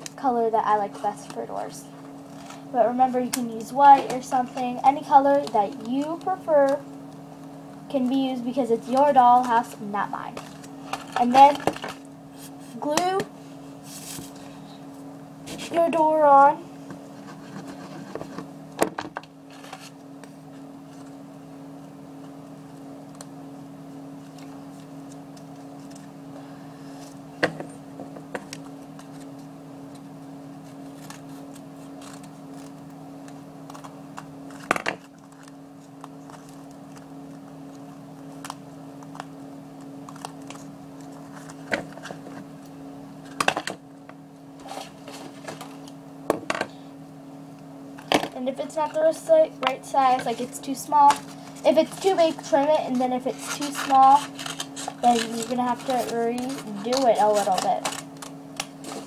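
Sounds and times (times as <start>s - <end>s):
low room hum: 0.0s - 59.0s
cardboard and paper handling clicks: 28.4s - 37.1s, 53.4s - 59.0s.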